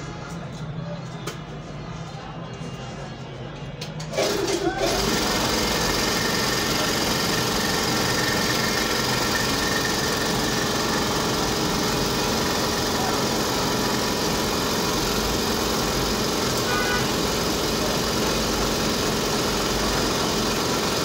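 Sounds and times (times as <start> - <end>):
dental equipment motor running: 4.2 - 21.0.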